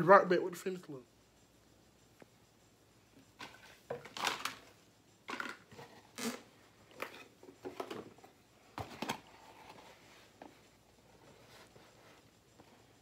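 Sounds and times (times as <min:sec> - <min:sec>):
rustling and clicking handling noises: 0:03.2 - 0:13.0.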